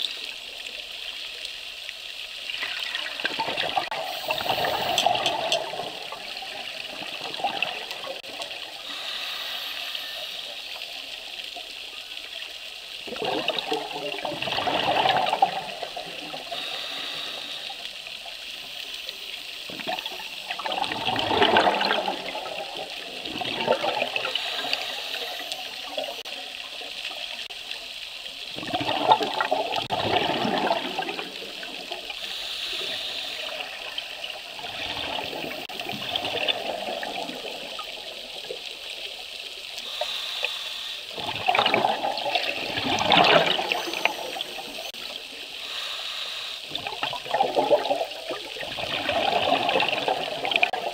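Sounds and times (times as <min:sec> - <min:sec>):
bubbles rushing underwater: 0:02.5 - 0:08.8, 0:13.0 - 0:16.6, 0:19.7 - 0:26.9, 0:28.5 - 0:32.2, 0:33.4 - 0:38.9, 0:41.2 - 0:45.1, 0:46.7 - 0:50.9
regulator hiss: 0:04.0 - 0:06.8, 0:08.3 - 0:13.0, 0:15.7 - 0:20.5, 0:24.2 - 0:28.4, 0:32.0 - 0:34.6, 0:39.5 - 0:41.2, 0:43.5 - 0:47.0.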